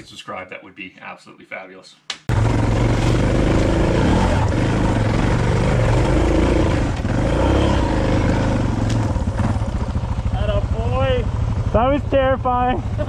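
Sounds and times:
motorcycle engine pulling under load: 2.3s - 10.3s.

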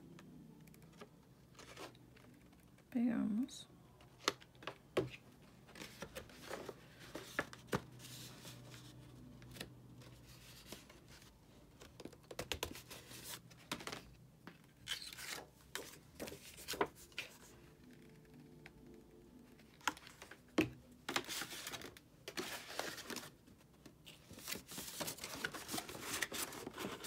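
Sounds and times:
cardstock rustling and crinkling: 4.1s - 18.2s, 19.6s - 27.0s.

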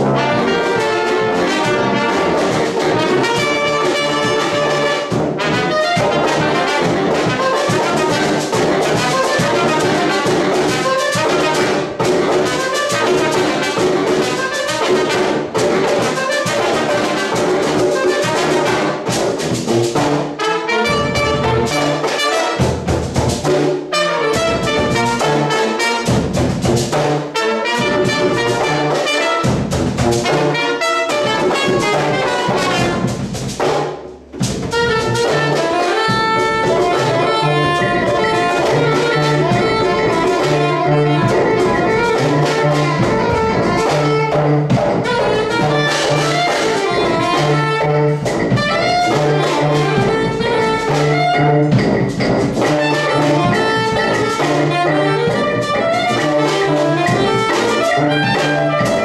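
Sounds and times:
brass street band playing: 0.0s - 59.0s
tuba bass line: 0.0s - 59.0s
soprano saxophone: 34.7s - 44.4s, 45.0s - 51.7s, 52.8s - 59.0s.

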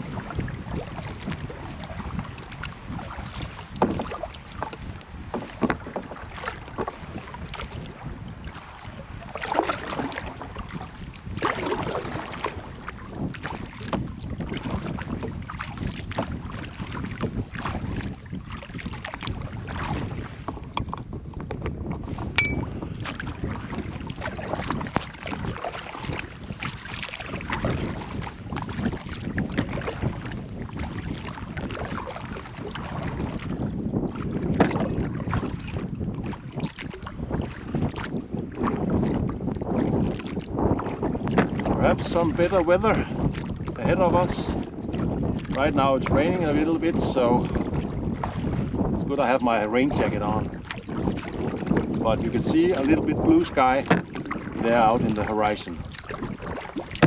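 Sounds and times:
canoe paddle strokes splashing: 0.0s - 57.0s
wind buffeting microphone: 0.0s - 57.0s.

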